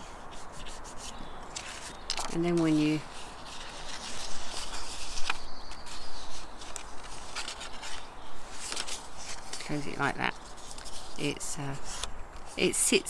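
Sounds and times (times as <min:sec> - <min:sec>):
paper card rustling and scraping: 0:00.0 - 0:13.0.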